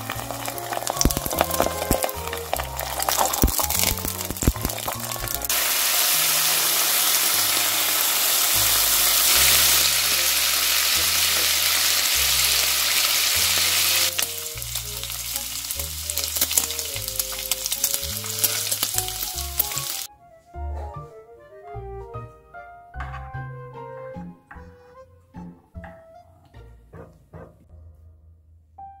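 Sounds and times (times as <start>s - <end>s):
fat popping: 0.0s - 5.6s
bacon sizzling in a pan: 0.0s - 20.1s
soft background music: 0.0s - 29.0s.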